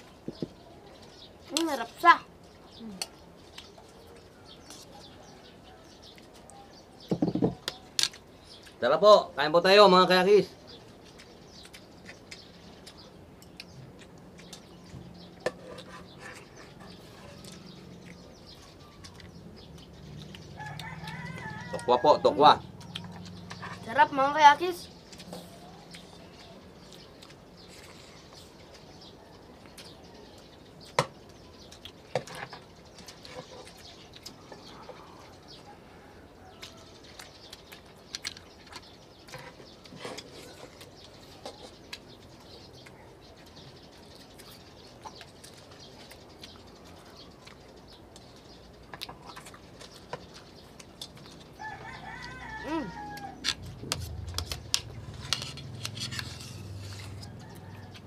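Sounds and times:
people chewing and eating: 0:00.0 - 0:58.0
rooster crowing: 0:20.5 - 0:22.6, 0:51.6 - 0:53.7, 0:56.9 - 0:58.0.

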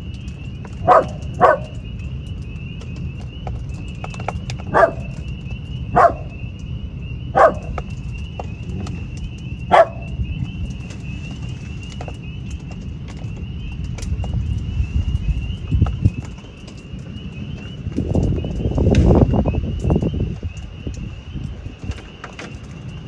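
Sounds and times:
spring peepers peeping: 0:00.0 - 0:23.0
dog yapping: 0:00.8 - 0:01.8, 0:04.7 - 0:05.2, 0:06.0 - 0:06.3, 0:07.4 - 0:07.8, 0:09.7 - 0:10.1.

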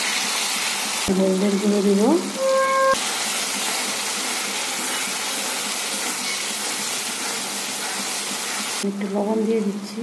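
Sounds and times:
food sizzling in hot oil: 0:00.0 - 0:08.9.

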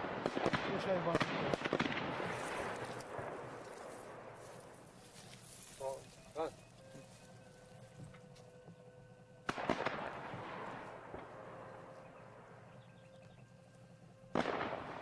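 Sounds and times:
faint distant gunshots: 0:00.0 - 0:04.9, 0:09.4 - 0:13.4, 0:14.2 - 0:15.0.

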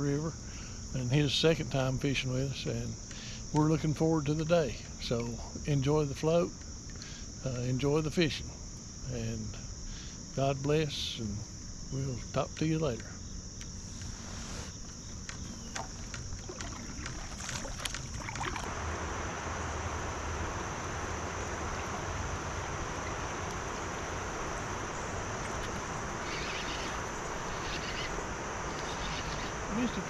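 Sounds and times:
crickets chirping: 0:00.0 - 0:30.0
insect drone: 0:00.0 - 0:30.0
wind: 0:00.0 - 0:30.0
river water rushing: 0:16.4 - 0:30.0.

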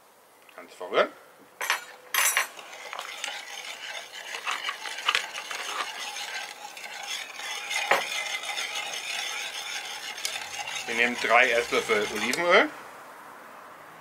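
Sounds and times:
spoon stirring in a bowl: 0:01.6 - 0:12.7.

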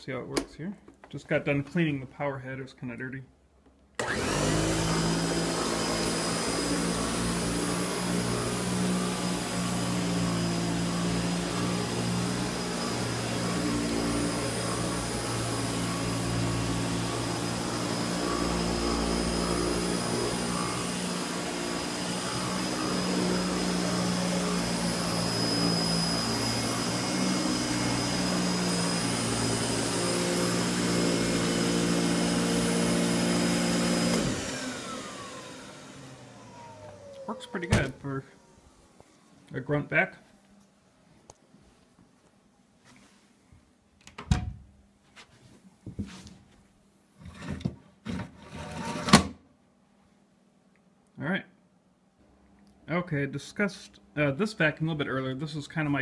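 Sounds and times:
vacuum cleaner motor hum and whine: 0:04.0 - 0:39.3.

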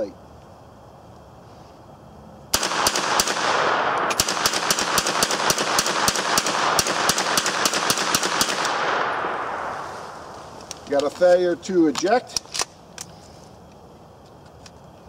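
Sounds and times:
rifle gunshots with echo: 0:02.5 - 0:10.6.

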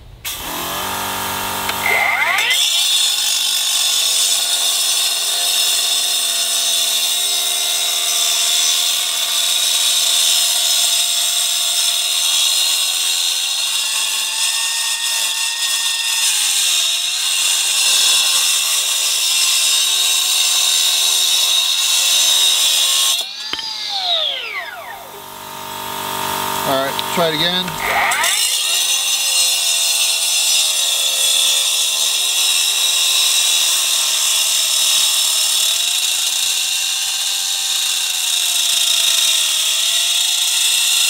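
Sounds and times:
saw blade spinning down: 0:00.3 - 0:03.2, 0:20.8 - 0:30.1
cutoff saw cutting concrete: 0:00.3 - 0:41.0.

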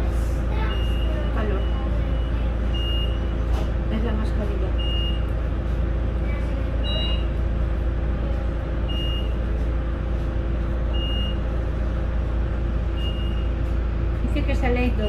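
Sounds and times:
tram equipment humming: 0:00.0 - 0:15.0.

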